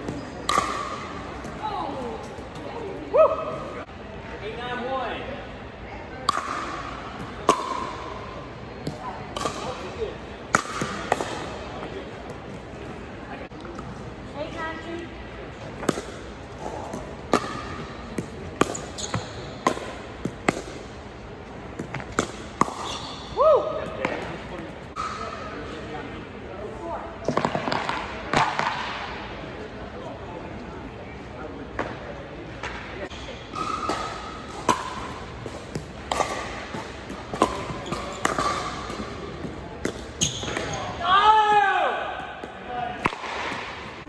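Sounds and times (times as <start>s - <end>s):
ball bouncing on court: 0.0s - 2.8s, 15.8s - 20.9s, 21.7s - 23.2s, 33.5s - 40.9s
paddles hitting plastic ball: 33.9s - 40.7s.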